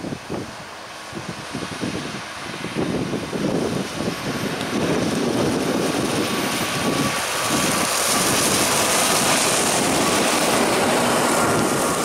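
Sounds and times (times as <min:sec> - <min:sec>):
tractor and trailer driving past: 0:00.0 - 0:12.0.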